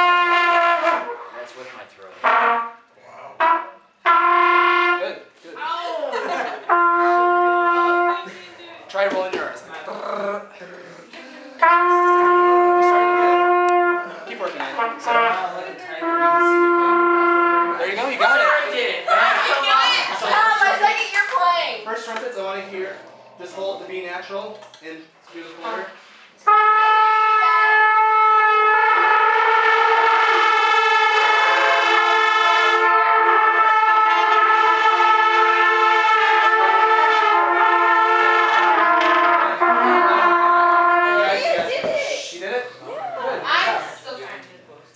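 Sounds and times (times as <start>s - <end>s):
trumpets holding sustained note: 0.0s - 1.2s, 2.2s - 5.2s, 6.6s - 8.4s, 11.6s - 17.9s, 26.4s - 41.4s.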